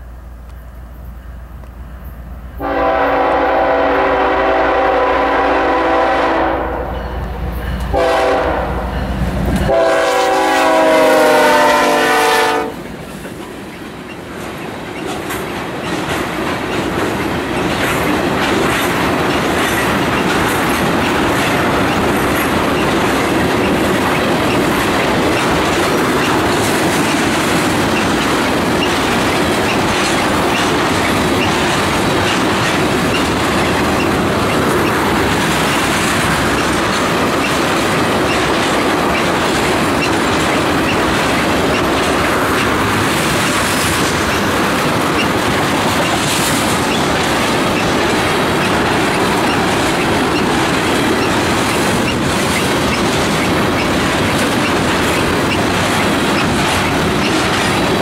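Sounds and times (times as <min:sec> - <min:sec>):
locomotive air horn blasts: 0:02.6 - 0:07.0, 0:07.9 - 0:09.1, 0:09.7 - 0:12.8
train wheels clacking over rail joints: 0:07.0 - 0:58.0.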